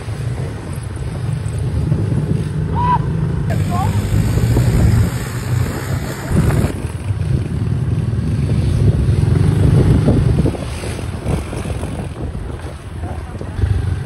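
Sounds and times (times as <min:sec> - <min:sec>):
quad bike engines running: 0:00.0 - 0:14.0.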